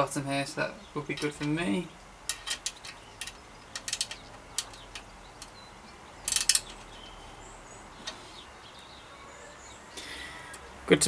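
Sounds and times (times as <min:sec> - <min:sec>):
spanner clicking: 0:02.3 - 0:05.6, 0:06.2 - 0:07.0.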